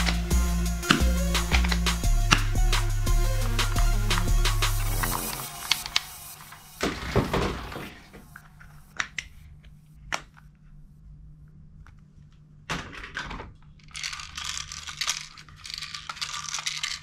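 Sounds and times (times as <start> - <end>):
plastic toys clicking and knocking: 12.7 - 17.0.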